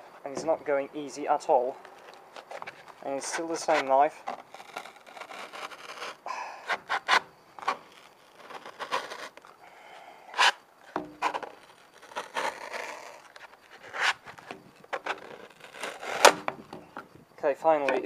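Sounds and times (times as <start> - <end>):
sharp cracks of material: 1.8 - 9.6, 10.4 - 17.1
knife scraping through hard foam: 2.3 - 9.5, 10.3 - 16.6.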